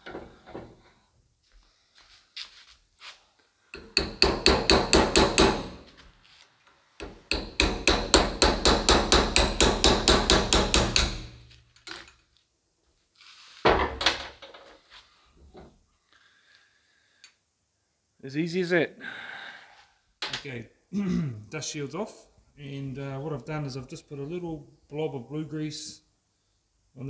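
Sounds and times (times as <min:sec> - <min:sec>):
hammer striking metal punch: 0:03.8 - 0:05.9, 0:07.0 - 0:11.5.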